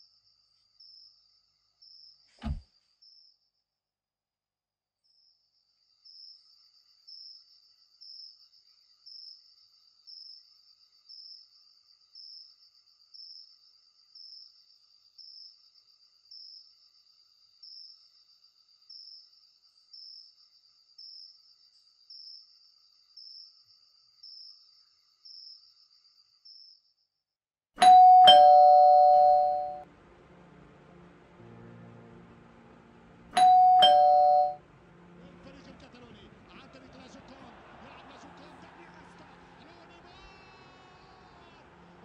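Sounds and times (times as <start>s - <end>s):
crickets chirping: 0.0s - 3.5s, 5.1s - 27.0s.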